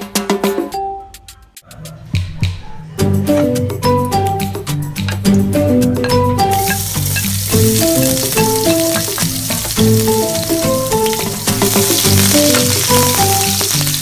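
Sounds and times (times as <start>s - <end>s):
background music simple melody: 0.0s - 14.0s
garlic sizzling in hot oil: 6.5s - 14.0s
spatula stirring in pan: 6.6s - 14.0s.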